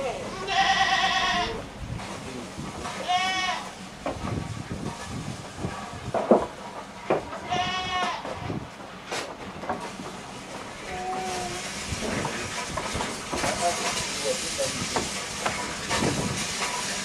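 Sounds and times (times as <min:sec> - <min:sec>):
goat bleating: 0:00.0 - 0:01.6, 0:03.0 - 0:03.8, 0:07.4 - 0:08.6.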